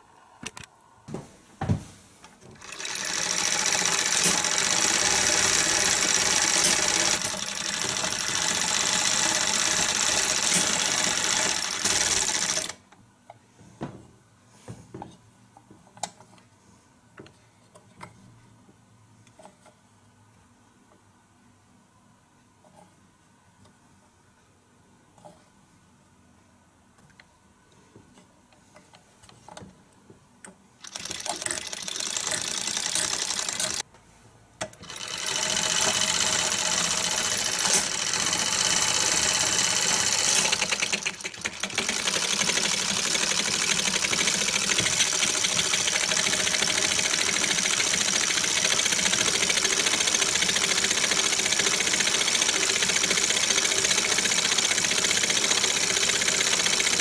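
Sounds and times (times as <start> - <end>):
film projector clattering: 2.6 - 12.8, 30.8 - 33.8, 34.8 - 57.0.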